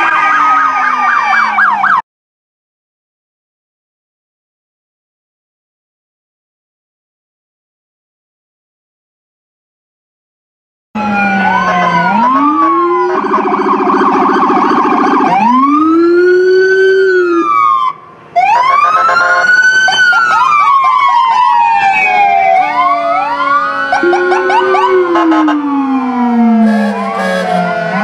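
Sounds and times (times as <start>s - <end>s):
emergency sirens wailing: 0.0s - 2.0s, 11.0s - 28.0s
siren yelp: 0.0s - 2.0s, 11.0s - 28.0s.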